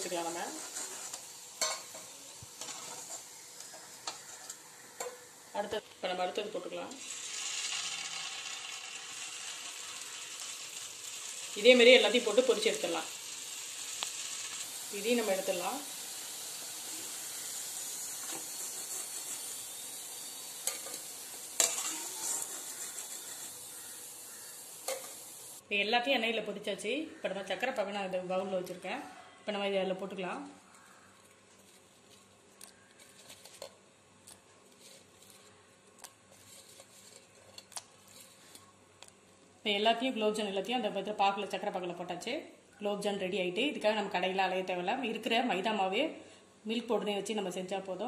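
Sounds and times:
dough frying in hot oil: 0:00.0 - 0:05.5, 0:06.8 - 0:25.6.

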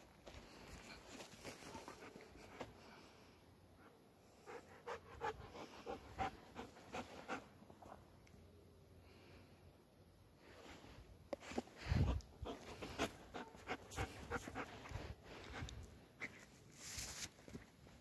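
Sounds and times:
dog panting: 0:04.4 - 0:07.9, 0:12.0 - 0:15.8.

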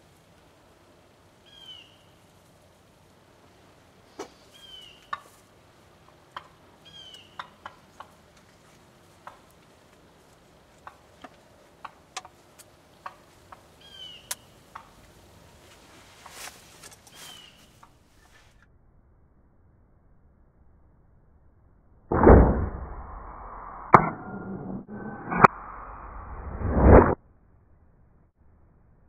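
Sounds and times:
bird chirping: 0:01.4 - 0:02.2, 0:04.2 - 0:05.3, 0:06.8 - 0:08.0, 0:12.9 - 0:15.0, 0:17.0 - 0:18.6.

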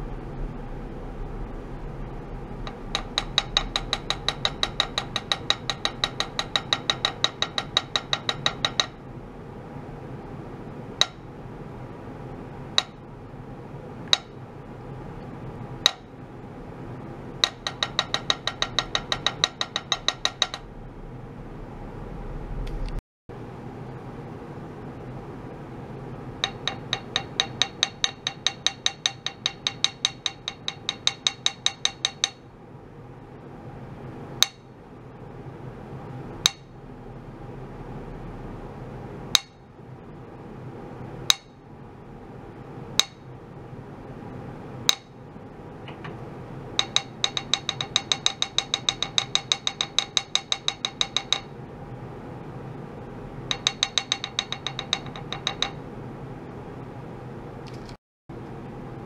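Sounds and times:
mallet tapping metal plate: 0:02.6 - 0:09.0, 0:12.8 - 0:13.0, 0:15.8 - 0:16.1, 0:17.4 - 0:20.7, 0:26.4 - 0:32.4, 0:34.4 - 0:34.7, 0:36.4 - 0:36.7, 0:39.4 - 0:39.6, 0:41.3 - 0:41.6, 0:43.0 - 0:43.2, 0:44.9 - 0:45.2, 0:46.8 - 0:51.5, 0:53.5 - 0:55.8.

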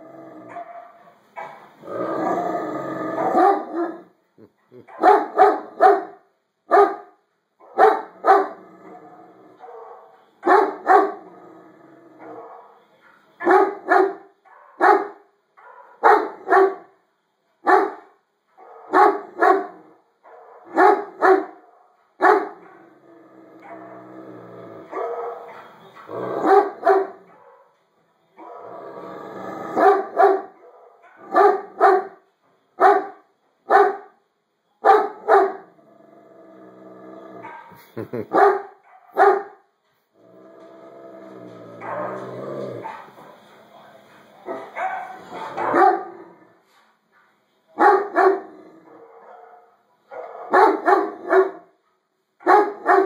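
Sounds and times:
large dog barking loudly: 0:00.3 - 0:04.1, 0:04.9 - 0:11.4, 0:12.1 - 0:12.8, 0:13.4 - 0:16.9, 0:17.6 - 0:23.0, 0:23.6 - 0:24.1, 0:24.8 - 0:27.8, 0:29.6 - 0:32.2, 0:32.8 - 0:34.1, 0:34.8 - 0:35.8, 0:37.4 - 0:39.6, 0:41.8 - 0:46.4, 0:47.8 - 0:51.8, 0:52.4 - 0:53.0
quieter dog barking: 0:03.2 - 0:04.1, 0:04.8 - 0:08.6, 0:09.6 - 0:11.2, 0:12.2 - 0:16.9, 0:17.7 - 0:22.8, 0:24.9 - 0:27.8, 0:29.8 - 0:32.2, 0:32.8 - 0:34.1, 0:34.8 - 0:35.6, 0:37.4 - 0:39.6, 0:42.8 - 0:43.6, 0:44.4 - 0:46.2, 0:47.8 - 0:51.7, 0:52.4 - 0:53.0.

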